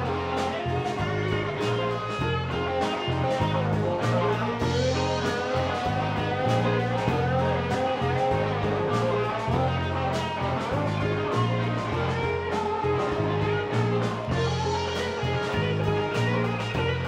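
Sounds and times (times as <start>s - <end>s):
bass guitar: 0.0s - 17.0s
drums: 0.0s - 17.0s
electric guitars: 0.0s - 17.0s.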